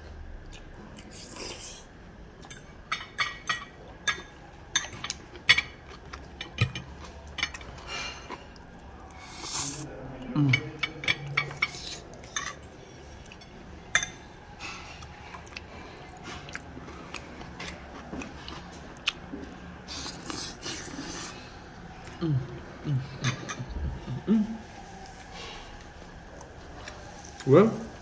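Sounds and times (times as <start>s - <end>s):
chewing: 3.6s - 28.0s
person humming: 22.1s - 24.7s.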